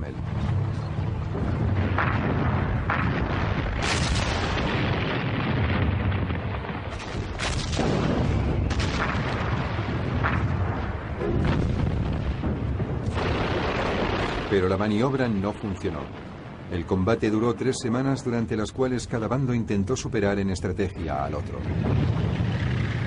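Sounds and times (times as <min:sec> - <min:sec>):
continuous low rumble: 0:00.0 - 0:23.0
artillery shots and shell bursts: 0:01.5 - 0:14.8.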